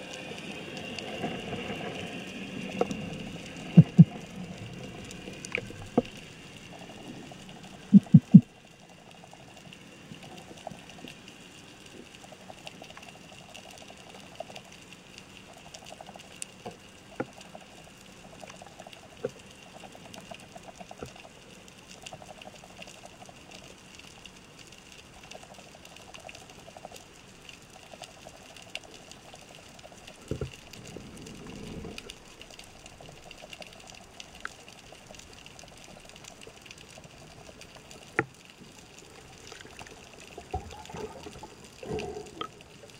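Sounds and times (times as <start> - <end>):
underwater clicks and crackles: 0.0 - 42.9
soft repeating pulses: 2.8 - 10.8.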